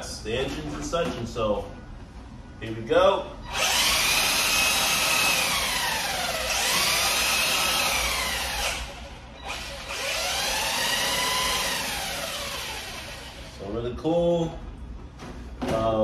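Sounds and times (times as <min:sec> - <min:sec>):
electric motor whining: 0:03.5 - 0:13.6.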